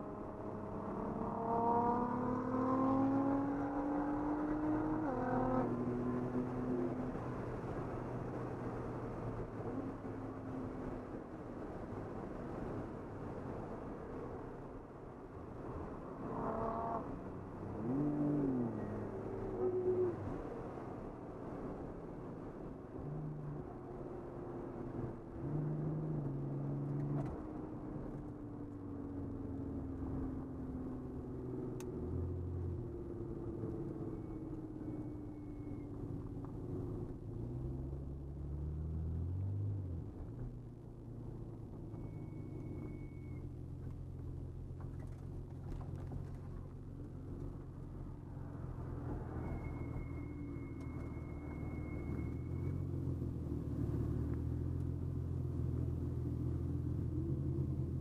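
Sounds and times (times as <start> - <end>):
road noise: 0.0 - 58.0
car engine from inside cabin: 23.6 - 58.0
faint high whistle: 34.0 - 36.0, 41.9 - 43.6, 49.1 - 53.2.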